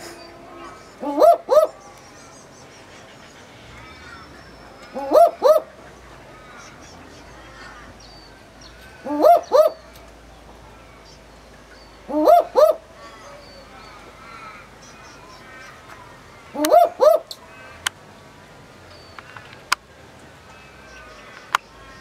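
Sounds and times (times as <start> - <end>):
owl barking calls: 0.0 - 10.0, 11.9 - 17.9.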